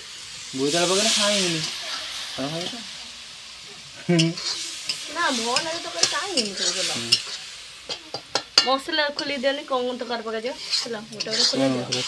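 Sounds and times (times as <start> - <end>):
food sizzling in a wok: 0.0 - 12.0
metal ladle scraping a wok: 4.2 - 12.0
ladle clicking against pan: 5.6 - 9.3.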